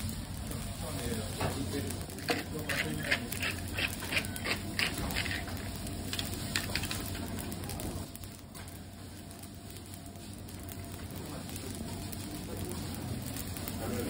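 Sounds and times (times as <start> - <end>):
fried rice sizzling: 0.0 - 14.0
scraping taps on steel griddle: 2.2 - 5.6.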